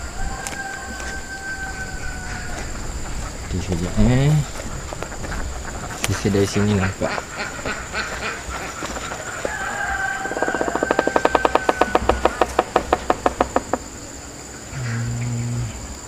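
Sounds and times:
woodpecker drumming: 0:02.5 - 0:14.8.

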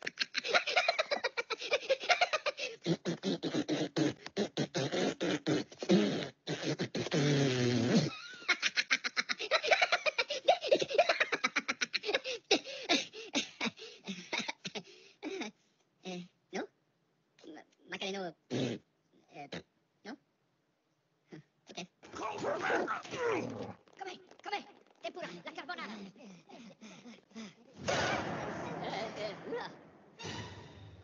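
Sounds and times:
drawn-out vocal cry: 0:22.1 - 0:23.8.

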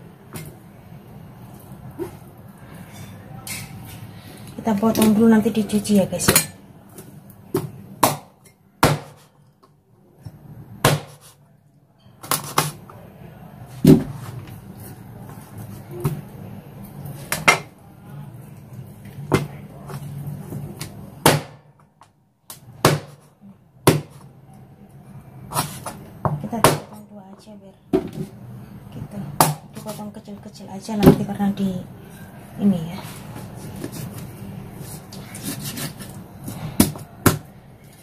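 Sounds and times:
knife chopping on cutting board: 0:07.6 - 0:09.3, 0:10.8 - 0:11.3, 0:22.8 - 0:24.2.

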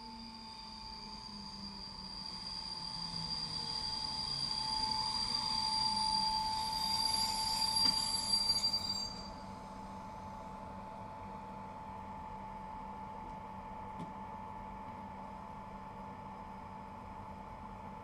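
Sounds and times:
train brakes squealing: 0:00.0 - 0:11.6.

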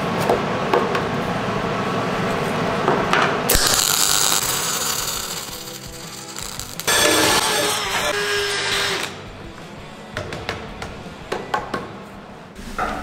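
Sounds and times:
welding arc crackling and hissing: 0:03.5 - 0:08.3.

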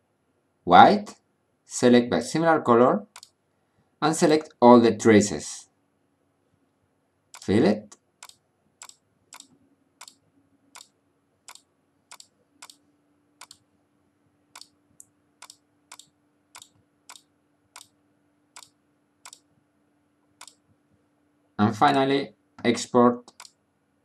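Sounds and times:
faint steady hum: 0:00.0 - 0:24.0
mouse button clicking: 0:14.6 - 0:17.9, 0:20.4 - 0:20.6.

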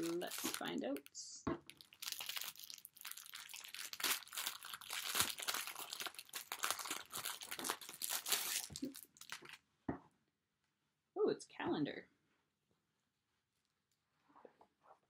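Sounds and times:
wrapping crinkling and tearing: 0:00.0 - 0:09.6.

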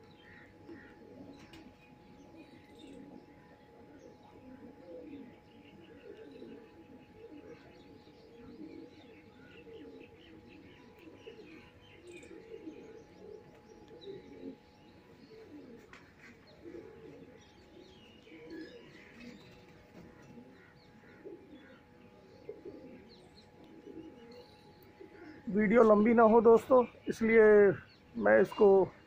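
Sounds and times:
faint steady hum: 0:00.0 - 0:29.0
pigeons cooing: 0:00.0 - 0:29.0
small birds chirping: 0:00.0 - 0:29.0.

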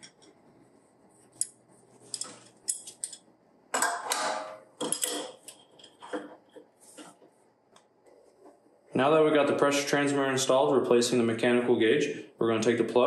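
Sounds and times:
wrench clinking and scraping on metal: 0:01.4 - 0:03.2, 0:03.8 - 0:06.3.

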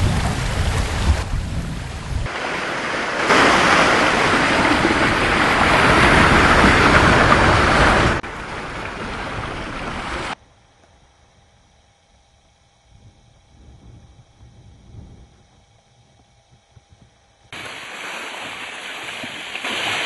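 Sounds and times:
water rushing and splashing: 0:00.0 - 0:10.4, 0:17.6 - 0:20.0
wind buffeting microphone: 0:00.0 - 0:10.4, 0:12.9 - 0:20.0.

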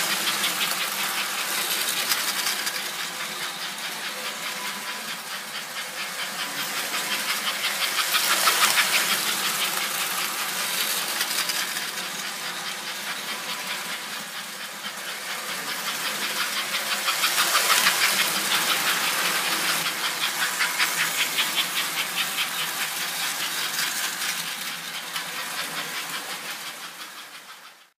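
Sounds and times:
toy train wheels clattering: 0:00.0 - 0:27.9.

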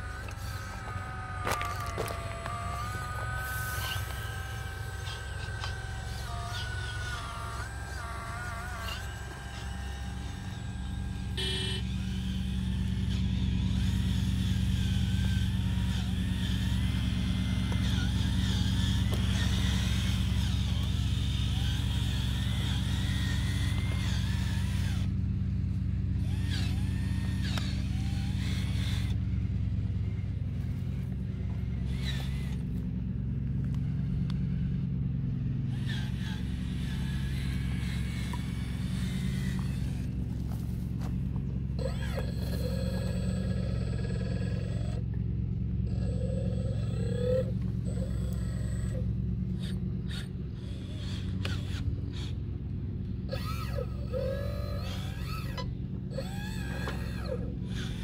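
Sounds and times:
low engine-like hum: 0:00.0 - 0:58.0.

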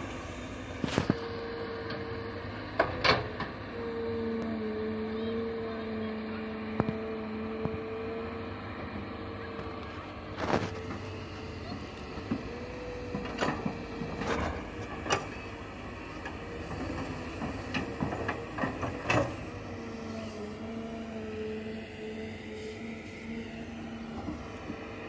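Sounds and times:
excavator engine hum: 0:00.0 - 0:25.0
excavator knocks and clanks: 0:00.8 - 0:04.6, 0:09.5 - 0:19.8, 0:24.0 - 0:25.0.

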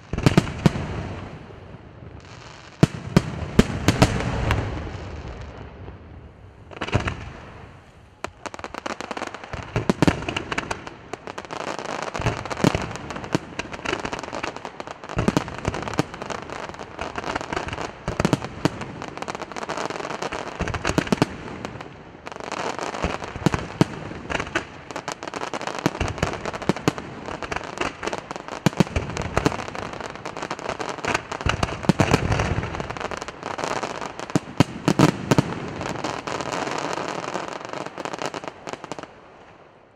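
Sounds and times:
crackle of firework stars: 0:00.0 - 0:39.9.

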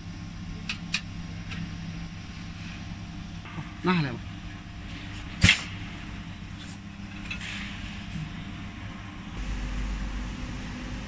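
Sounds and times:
faint high whine: 0:00.0 - 0:11.0
machine humming: 0:07.9 - 0:11.0.

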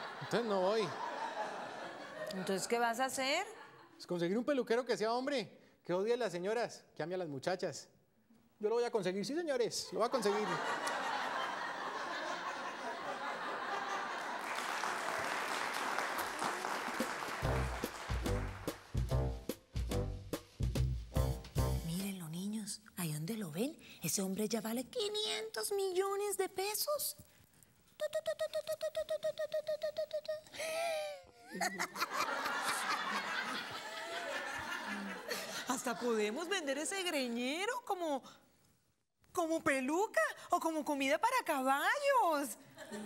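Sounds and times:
studio audience laughing: 0:00.0 - 0:02.8, 0:10.0 - 0:15.3, 0:31.5 - 0:36.4, 0:42.7 - 0:43.0
applause: 0:13.9 - 0:19.0
transition music: 0:17.4 - 0:21.9.

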